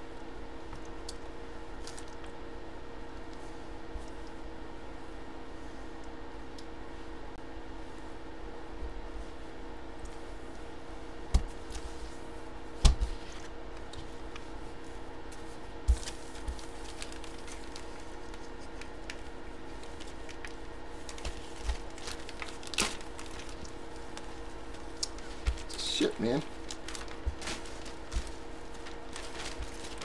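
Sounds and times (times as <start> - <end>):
plastic bag crinkling: 16.0 - 30.0.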